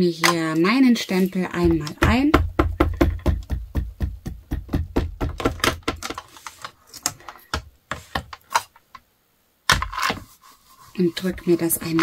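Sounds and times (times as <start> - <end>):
ink pad tapping on stamp: 1.6 - 6.1.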